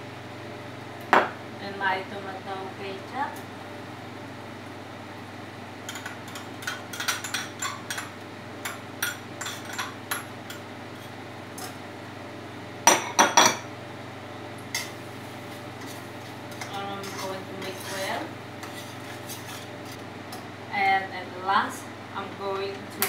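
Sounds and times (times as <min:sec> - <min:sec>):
spoon scraping glass bowl: 0:15.8 - 0:20.0.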